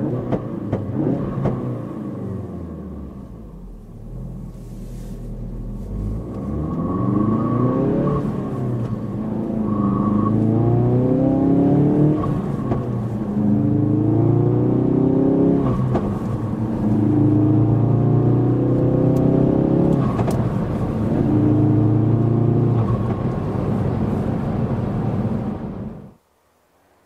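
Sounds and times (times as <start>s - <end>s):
car engine accelerating through gears: 0.0s - 26.2s.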